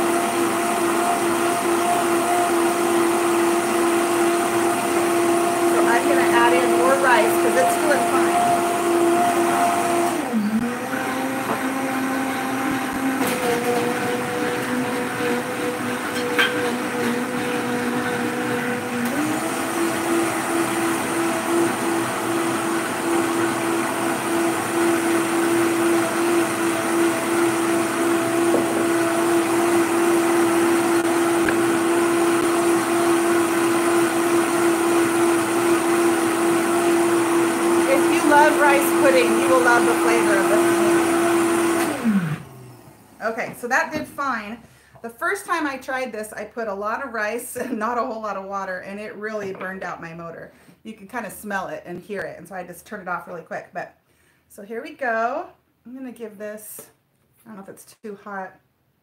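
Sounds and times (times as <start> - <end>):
blender motor running: 0.0 - 43.3.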